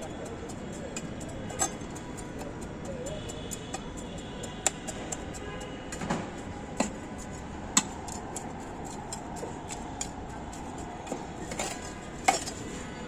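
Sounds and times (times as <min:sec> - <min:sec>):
steady background noise: 0:00.0 - 0:13.0
trowel scraping soil: 0:06.8 - 0:13.0.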